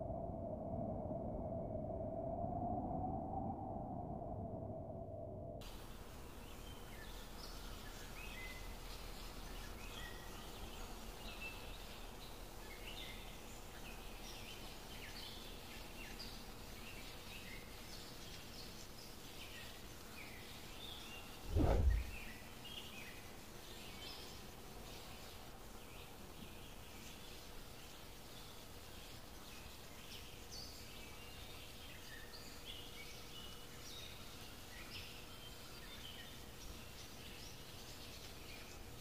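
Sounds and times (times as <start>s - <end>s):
faint steady hiss: 5.6s - 39.0s
small birds chirping: 5.7s - 39.0s
low thump: 21.5s - 22.3s.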